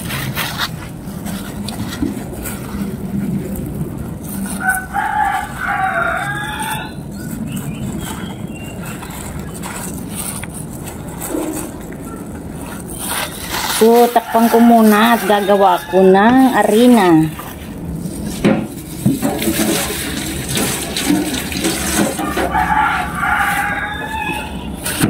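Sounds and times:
rooster crowing: 0:04.5 - 0:07.0, 0:13.8 - 0:17.1, 0:22.0 - 0:24.8.

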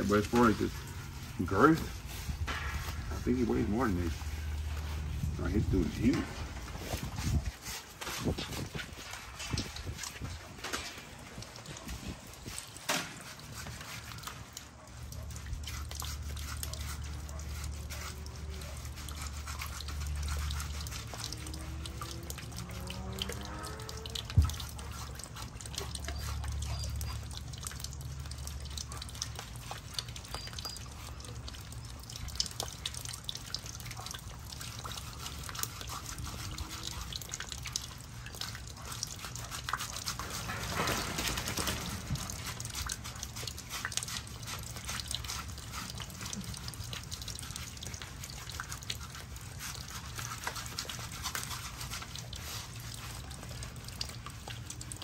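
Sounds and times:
rush of water spray: 0:00.0 - 0:14.2
water dripping and splashing: 0:00.0 - 0:55.0.

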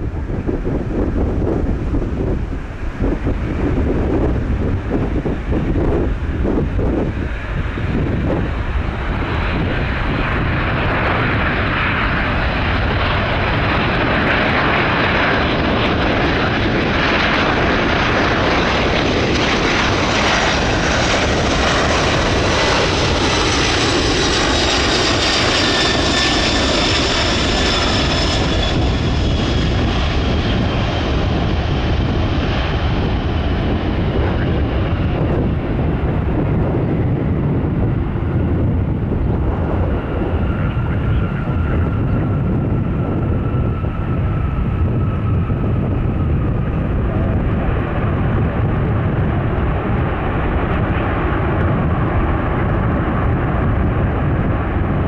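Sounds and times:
jet aircraft passing: 0:00.0 - 0:55.0.

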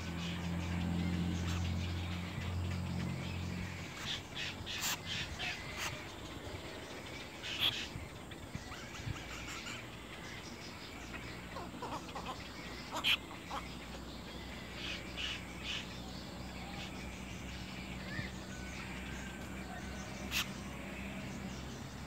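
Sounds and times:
bird chicks calling: 0:00.0 - 0:22.0.

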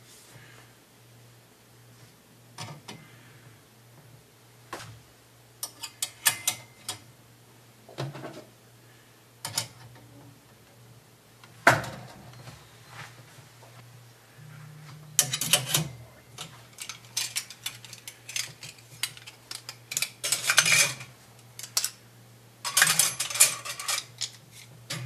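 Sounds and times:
metal hooks clinking on steel rack: 0:15.2 - 0:22.0, 0:22.6 - 0:25.0.

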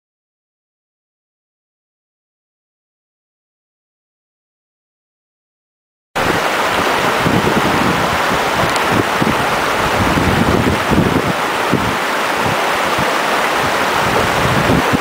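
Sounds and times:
stream rushing over stones: 0:06.2 - 0:15.0
wind buffeting microphone: 0:06.2 - 0:15.0.

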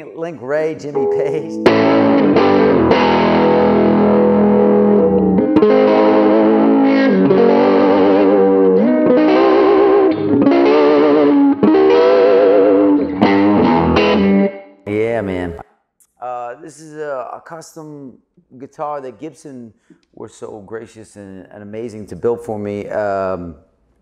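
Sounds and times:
distorted electric guitar: 0:01.0 - 0:14.7.

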